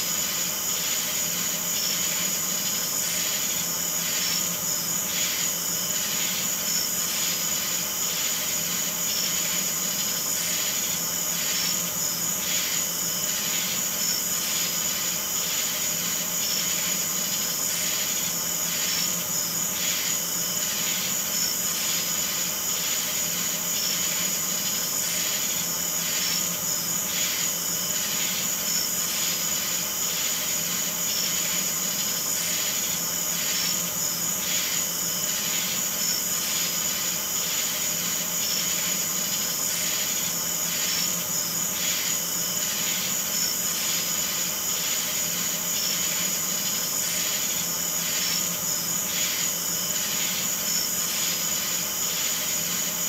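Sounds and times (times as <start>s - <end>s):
insect high-pitched trill: 0.0s - 53.0s
pulsing insect call: 0.0s - 53.0s.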